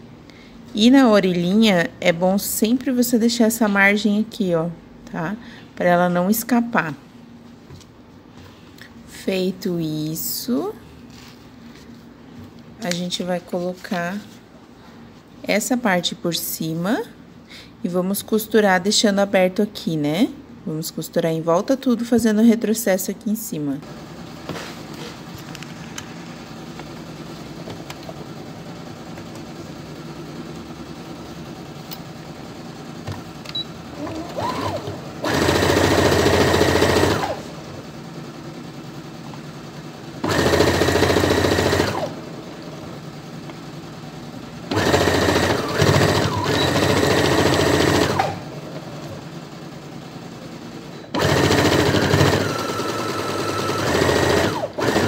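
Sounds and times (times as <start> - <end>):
electric sewing machine stitching: 33.6 - 43.2, 44.7 - 49.6, 51.1 - 55.0.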